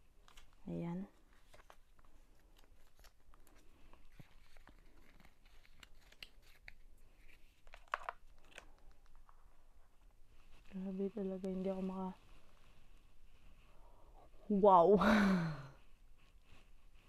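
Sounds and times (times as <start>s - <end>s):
paper packaging rustling: 1.2s - 9.6s.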